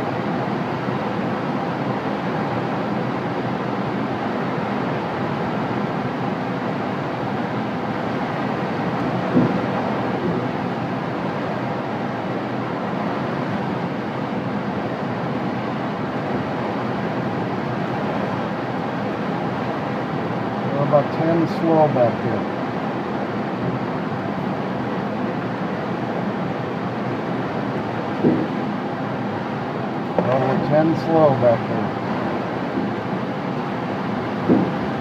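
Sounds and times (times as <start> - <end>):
brief knock: 9.3 - 9.6, 28.2 - 28.6, 34.5 - 34.8.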